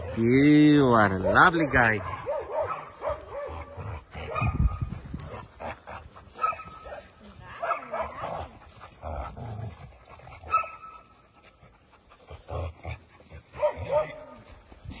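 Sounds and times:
dogs panting: 0.0s - 15.0s.

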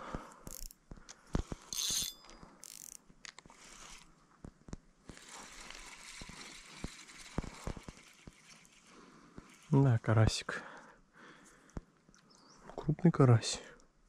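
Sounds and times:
fishing reel clicking: 0.4s - 0.8s, 1.7s - 3.0s, 3.6s - 4.1s, 5.1s - 9.7s.

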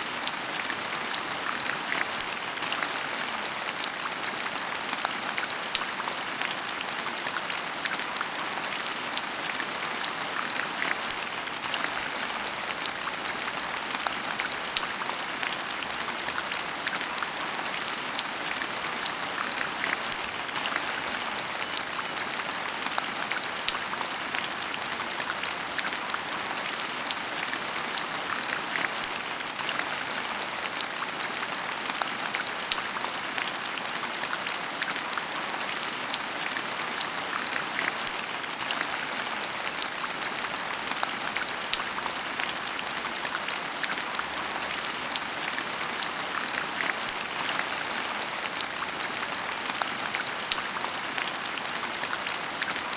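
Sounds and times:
heavy rain: 0.0s - 52.9s.

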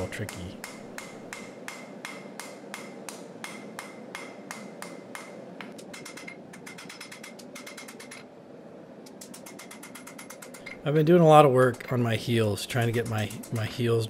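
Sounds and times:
hammer striking hot metal on anvil: 0.0s - 5.4s.

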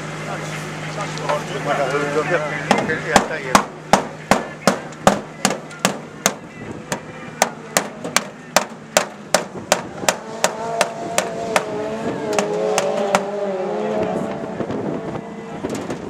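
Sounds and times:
hammer on metal: 2.7s - 11.7s
engine revving: 8.8s - 16.0s.

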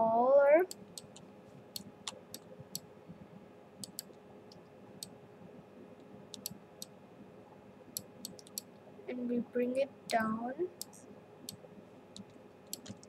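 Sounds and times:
faint steady hum: 0.0s - 13.0s
computer mouse clicks: 0.7s - 1.2s, 3.8s - 5.1s, 6.3s - 6.9s, 8.0s - 8.7s, 12.2s - 13.0s.

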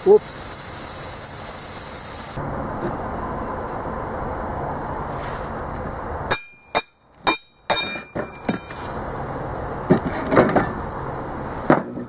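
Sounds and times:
steady hiss: 0.0s - 2.4s
metal knocks and clanks: 6.3s - 8.7s.

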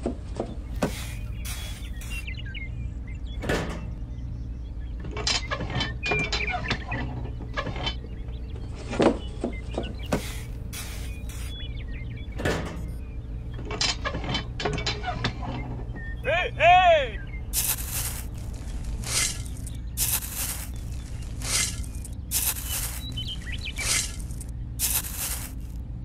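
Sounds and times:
short squeaks: 0.7s - 2.3s, 5.1s - 8.2s, 8.8s - 13.0s, 13.6s - 16.2s, 17.6s - 25.8s
small motor running: 17.6s - 25.8s.

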